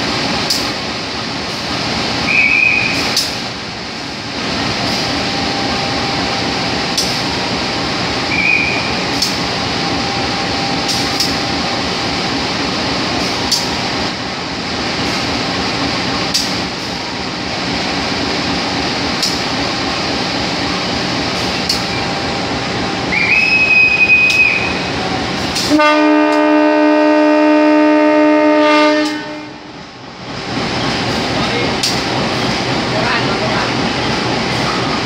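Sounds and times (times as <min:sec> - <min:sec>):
engine and station rumble: 0:00.0 - 0:35.0
high whistle blast: 0:02.3 - 0:03.1, 0:08.2 - 0:09.0, 0:23.1 - 0:24.9
locomotive horn chord: 0:25.6 - 0:29.7.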